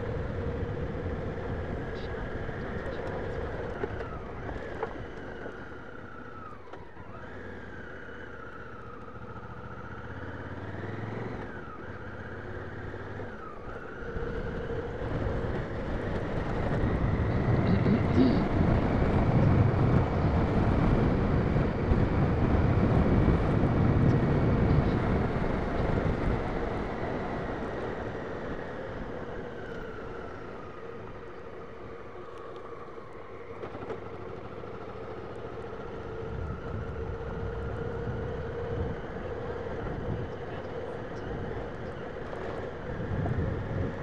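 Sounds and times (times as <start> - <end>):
motorcycle engine rumbling: 0.0 - 44.0
wind buffeting the microphone: 14.1 - 28.6, 36.0 - 44.0.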